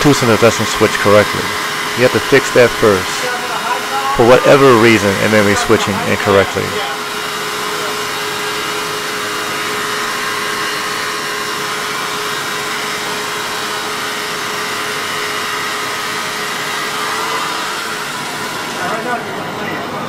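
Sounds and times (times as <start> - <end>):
steady mid-pitched tone: 0.0 - 8.5
machinery hum and hiss: 0.0 - 20.0.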